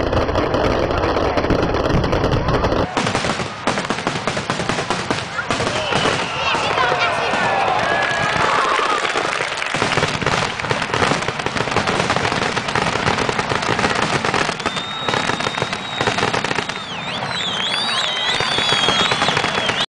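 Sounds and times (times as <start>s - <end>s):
fireworks crackling and banging: 0.0s - 19.9s
wavering firework whistles: 5.4s - 10.1s, 12.7s - 19.9s
high firework whistle: 5.5s - 10.0s, 12.7s - 19.9s.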